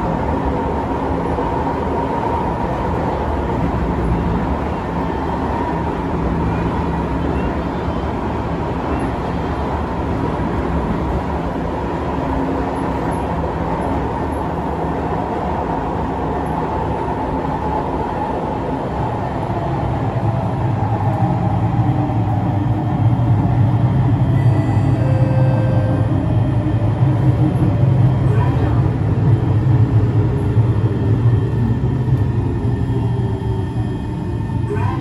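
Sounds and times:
faint held tone: 0:24.3 - 0:26.1.

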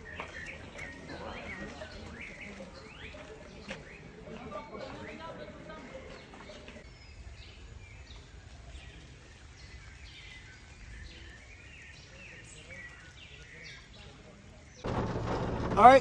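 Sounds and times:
birds chirping: 0:00.0 - 0:16.0
low steady rumble: 0:14.9 - 0:16.0.

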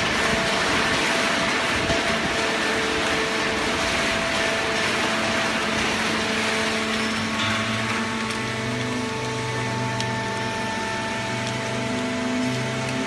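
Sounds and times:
lower machine hum: 0:00.0 - 0:13.0
machine hums: 0:00.0 - 0:13.0.

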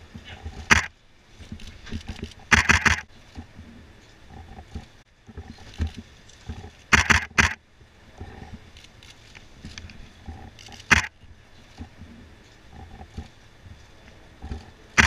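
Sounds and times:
low background rumble: 0:00.0 - 0:15.0
camera shutters firing: 0:00.7 - 0:00.9, 0:02.0 - 0:03.1, 0:06.9 - 0:07.6, 0:10.8 - 0:11.1.

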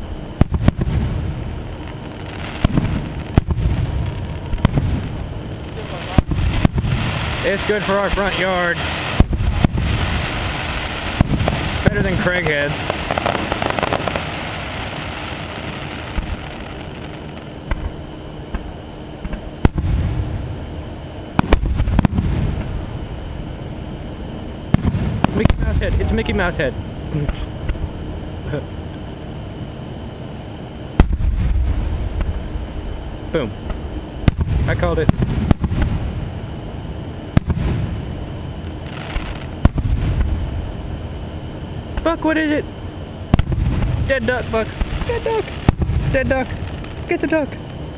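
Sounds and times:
faint fireworks pops: 0:00.0 - 0:20.3, 0:21.3 - 0:22.8, 0:24.7 - 0:26.3, 0:27.2 - 0:27.9, 0:31.0 - 0:32.4, 0:33.6 - 0:36.2, 0:37.3 - 0:40.5, 0:41.9 - 0:42.2, 0:43.3 - 0:47.9
fireworks bangs: 0:00.0 - 0:20.5, 0:21.4 - 0:22.9, 0:24.7 - 0:26.4, 0:31.0 - 0:32.4, 0:34.2 - 0:36.3, 0:37.3 - 0:38.2, 0:38.8 - 0:40.7, 0:43.3 - 0:47.6
fireworks crackling: 0:00.0 - 0:20.6, 0:21.4 - 0:23.0, 0:24.7 - 0:27.8, 0:31.0 - 0:32.4, 0:33.8 - 0:36.4, 0:37.3 - 0:40.7, 0:43.3 - 0:47.9
low rumbling: 0:00.0 - 0:47.9.

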